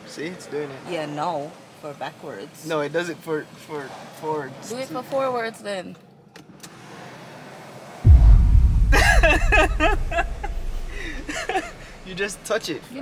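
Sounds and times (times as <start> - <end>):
loud low rumble: 8.1 - 12.2.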